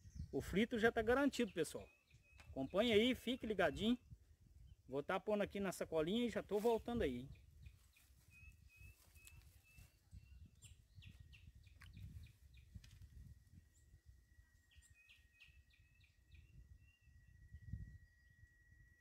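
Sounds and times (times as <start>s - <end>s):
short repeated bird chirps: 1.7s - 3.0s, 7.2s - 18.8s
thin steady whistle: 16.8s - 19.0s.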